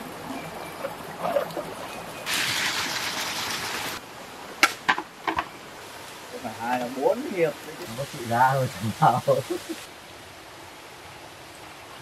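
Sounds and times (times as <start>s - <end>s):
water splashing in stream: 0.0s - 4.0s.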